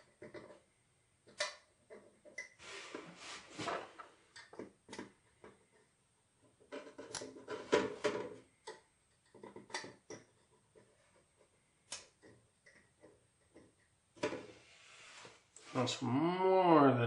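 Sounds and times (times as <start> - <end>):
plastic tubes clicking and tapping: 0.0 - 0.6, 1.2 - 2.6, 4.3 - 14.4.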